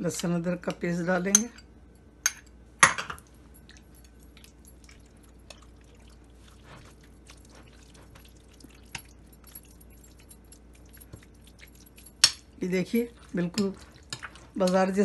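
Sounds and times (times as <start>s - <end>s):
spoon stirring marinade: 3.3s - 15.0s.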